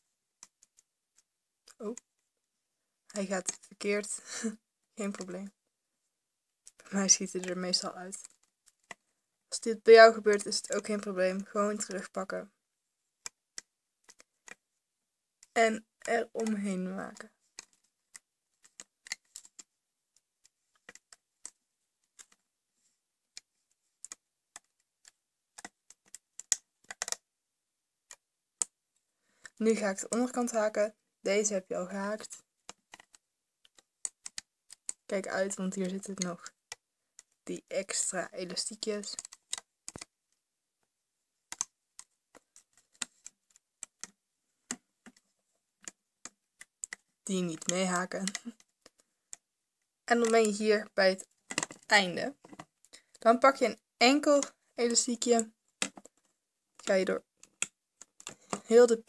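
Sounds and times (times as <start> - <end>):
crochet hook clicking on plastic: 13.2 - 14.6, 17.6 - 19.7, 23.3 - 27.2, 32.7 - 35.1, 38.8 - 40.1, 41.5 - 45.2, 45.8 - 49.4, 51.5 - 53.2, 54.2 - 59.0
crochet hook clicking on loom: 24.0 - 27.2.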